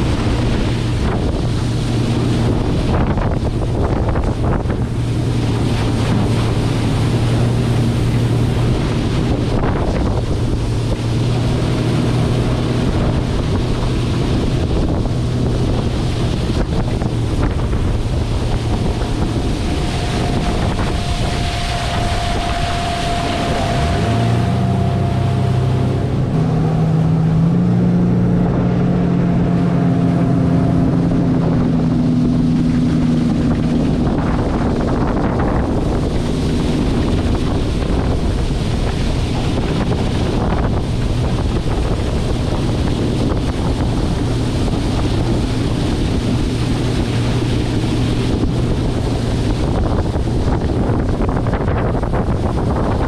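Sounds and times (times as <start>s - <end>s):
outboard motor running: 0.0s - 53.0s
water rushing past hull: 0.0s - 53.0s
wind buffeting microphone: 0.0s - 53.0s.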